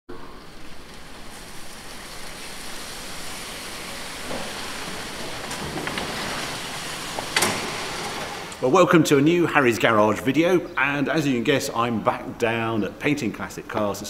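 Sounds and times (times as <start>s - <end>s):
steady rushing hiss: 0.1s - 14.0s
paper and plastic sheeting rustling: 0.7s - 8.5s.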